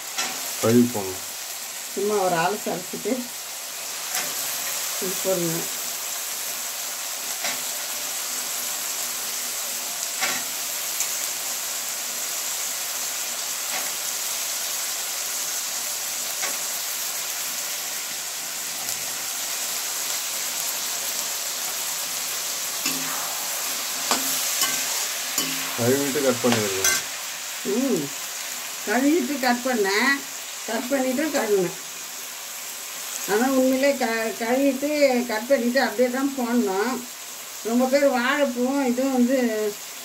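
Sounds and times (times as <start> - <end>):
food sizzling in oil: 0.0 - 40.0
spoon clacking against pan: 24.0 - 25.8, 26.5 - 27.2.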